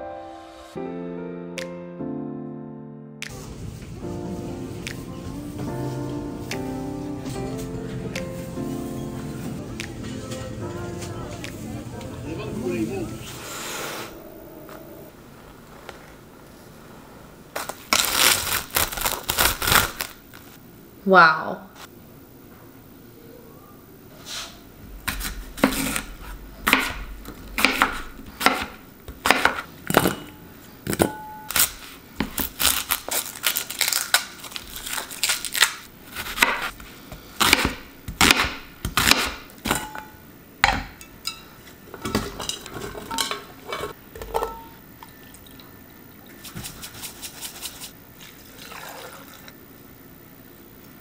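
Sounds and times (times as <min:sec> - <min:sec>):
knife chopping on cutting board: 0:25.0 - 0:26.1, 0:26.7 - 0:27.0, 0:27.6 - 0:30.1, 0:36.1 - 0:36.8, 0:37.4 - 0:39.4.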